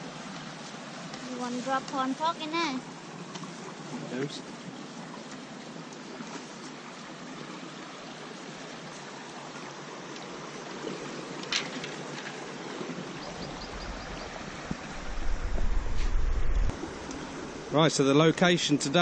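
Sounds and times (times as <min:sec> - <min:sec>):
water rushing through sluice gates: 0:00.0 - 0:15.2, 0:16.6 - 0:19.0
low rumble: 0:14.8 - 0:16.8.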